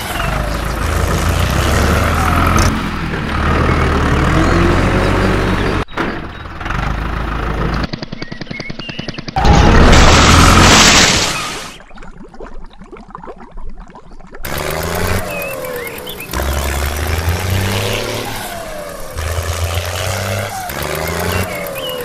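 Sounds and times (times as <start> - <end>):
tractor engine running: 0.0 - 10.8, 14.4 - 22.0.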